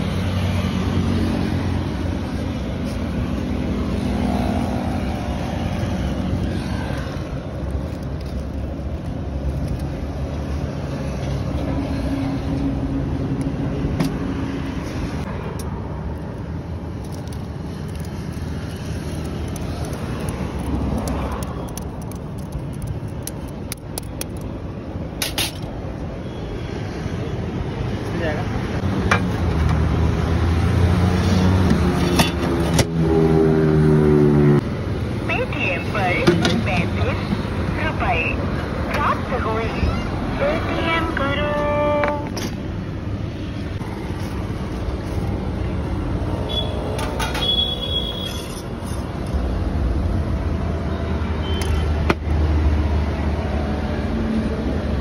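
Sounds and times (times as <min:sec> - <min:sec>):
road traffic: 0:00.0 - 0:55.0.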